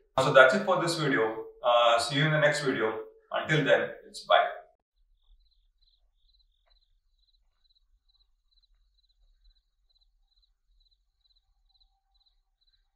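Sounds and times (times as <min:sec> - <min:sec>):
faint high chirp: 0:05.1 - 0:12.9.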